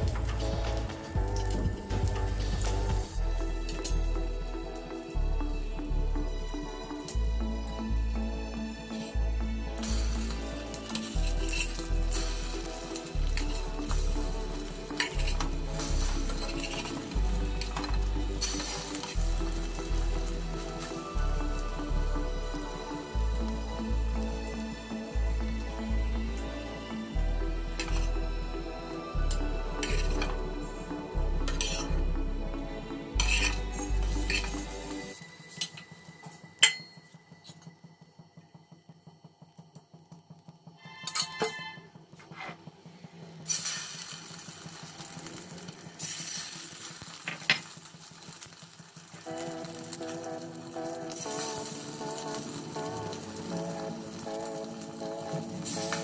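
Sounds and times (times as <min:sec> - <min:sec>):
soft background music: 0:00.0 - 0:56.0
bread sizzling in oil: 0:09.8 - 0:25.8, 0:43.5 - 0:56.0
metal spatula scraping a frying pan: 0:10.8 - 0:12.6, 0:14.9 - 0:19.1, 0:29.8 - 0:30.3, 0:31.5 - 0:32.0, 0:33.2 - 0:34.8, 0:40.8 - 0:42.6
spatula scraping pan: 0:31.5 - 0:32.0, 0:33.2 - 0:34.7
ringing metal clink: 0:36.6 - 0:37.1.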